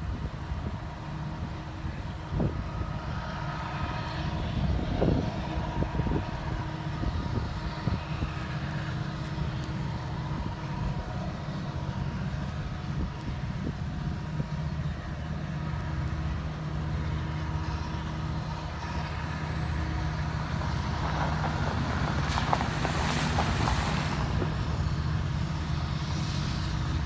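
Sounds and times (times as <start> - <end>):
faint steady tones: 0.0 - 21.0
diesel locomotive engines rumbling: 0.0 - 27.0.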